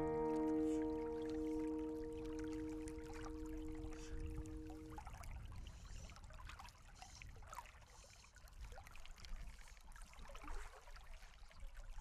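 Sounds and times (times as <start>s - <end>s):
water trickling and lapping: 0.0s - 12.0s.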